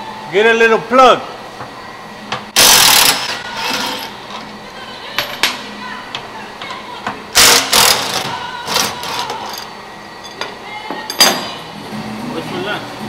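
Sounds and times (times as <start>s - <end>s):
power ratchet spinning bolt: 2.6s - 4.1s, 7.4s - 9.7s.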